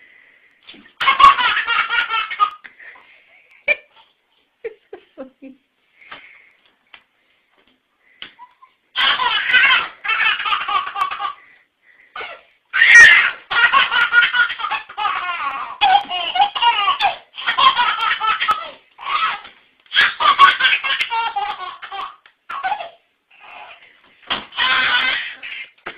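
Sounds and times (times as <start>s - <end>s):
baby laughing: 0.7s - 2.7s, 8.3s - 11.4s, 12.2s - 23.9s, 24.5s - 25.8s.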